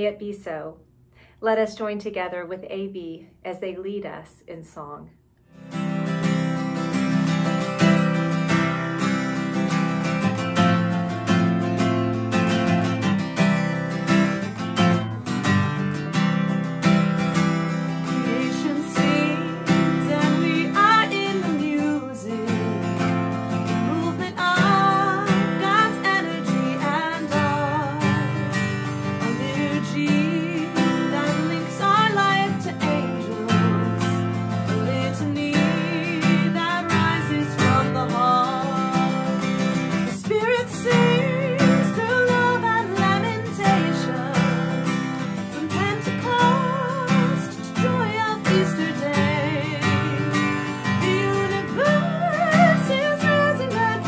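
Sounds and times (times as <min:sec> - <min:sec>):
strummed acoustic guitar: 0:05.4 - 0:54.0
woman singing a hymn: 0:18.1 - 0:23.0, 0:23.8 - 0:28.5, 0:29.1 - 0:39.4, 0:40.1 - 0:44.8, 0:45.6 - 0:54.0.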